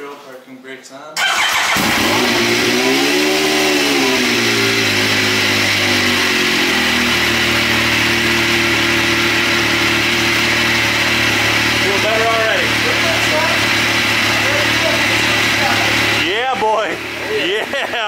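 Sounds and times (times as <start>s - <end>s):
engine revving and idling: 1.2s - 18.0s.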